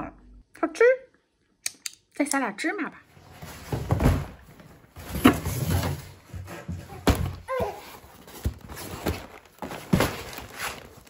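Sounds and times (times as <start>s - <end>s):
cardboard rustling: 3.1s - 11.0s
boxes knocking and thudding: 3.2s - 11.0s.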